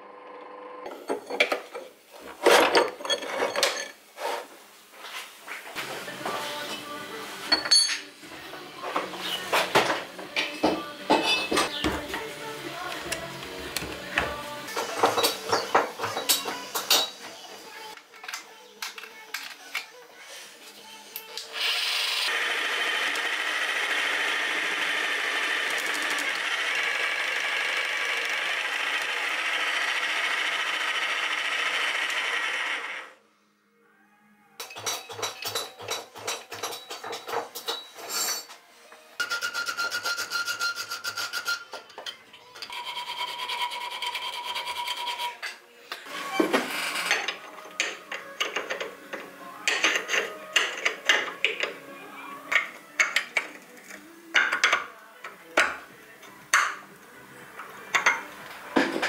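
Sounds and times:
jigsaw filing steel: 0:21.6 - 0:33.2, 0:42.7 - 0:45.4.

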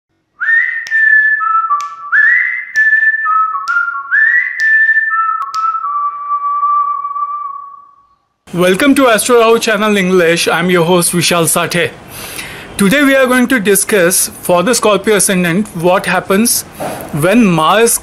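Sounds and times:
whistled jingle: 0:00.4 - 0:08.2.

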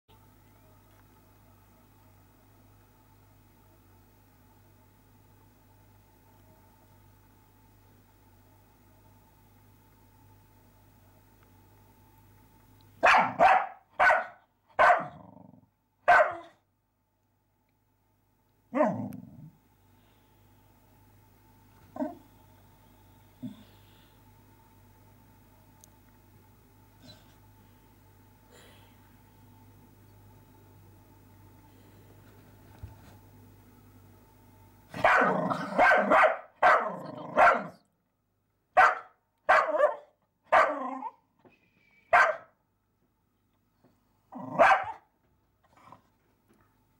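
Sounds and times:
dog barking: 0:13.0 - 0:15.2, 0:16.0 - 0:16.6, 0:34.9 - 0:37.8, 0:38.8 - 0:40.8, 0:42.1 - 0:42.5, 0:44.5 - 0:45.0.

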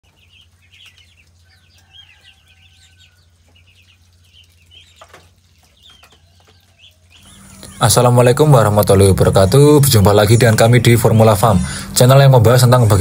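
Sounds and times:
ducklings peeping: 0:00.0 - 0:13.0
steady low hum: 0:07.0 - 0:13.0.

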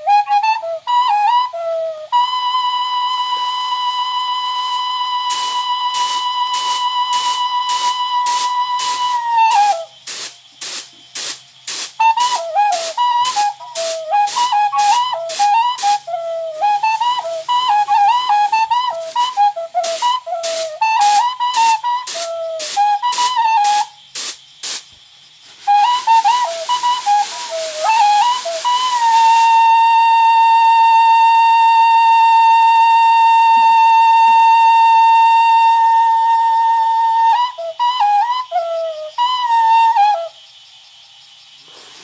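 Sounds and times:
flute-like melody: 0:00.0 - 0:10.1, 0:11.9 - 0:24.2, 0:25.6 - 0:40.4
rice swishing in winnowing tray: 0:03.3 - 0:29.8, 0:41.7 - 0:42.0.

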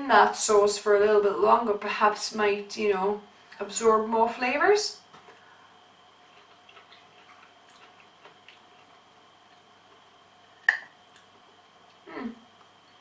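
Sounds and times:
person humming mm: 0:12.0 - 0:12.5.

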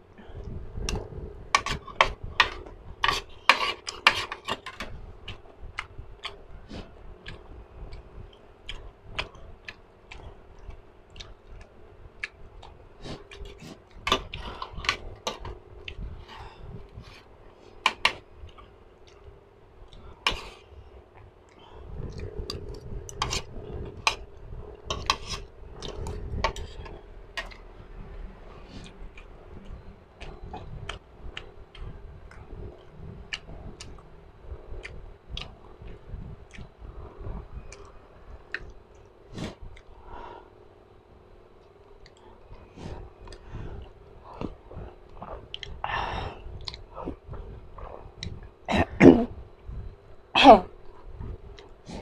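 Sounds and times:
faint steady hum: 0:00.0 - 0:52.0
chewing: 0:01.6 - 0:16.4, 0:34.7 - 0:39.9, 0:41.6 - 0:45.8, 0:46.6 - 0:48.6.

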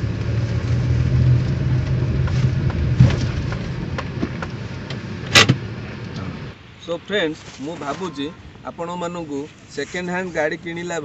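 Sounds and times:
car engine and road noise: 0:00.0 - 0:11.0
sharp knock: 0:05.3 - 0:05.6.

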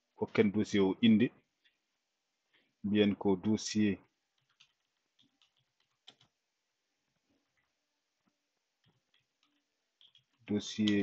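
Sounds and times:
computer keys clicking: 0:04.3 - 0:06.4, 0:08.8 - 0:11.0.

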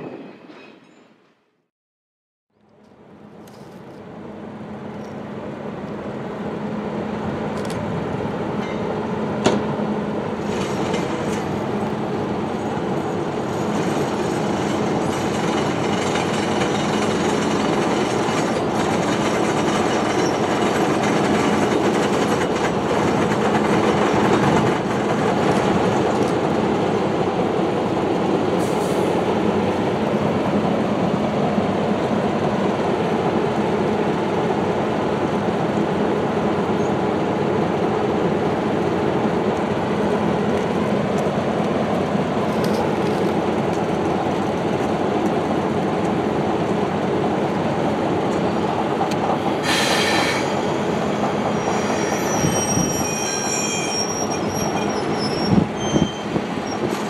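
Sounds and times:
diesel locomotive rumbling: 0:03.0 - 0:57.0
high-pitched squealing: 0:49.9 - 0:56.9.

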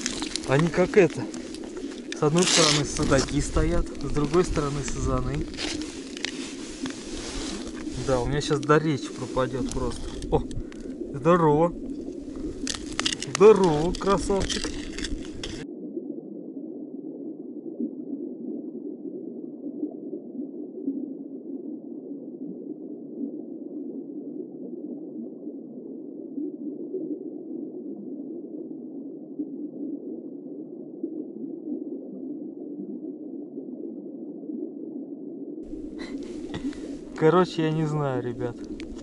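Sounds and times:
muffled underwater noise: 0:00.0 - 0:15.6, 0:35.7 - 0:39.0.

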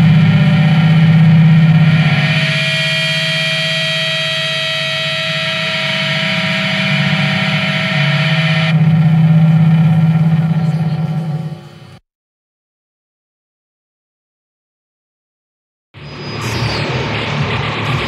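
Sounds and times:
distorted electric guitar drone: 0:00.0 - 0:12.0, 0:16.0 - 0:18.0
heavy low hum: 0:00.0 - 0:12.0.

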